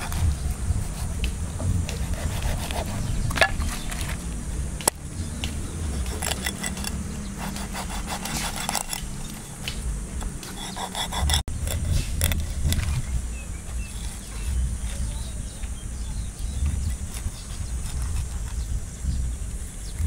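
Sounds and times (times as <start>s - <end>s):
knife cutting through fish: 10.4s - 12.6s.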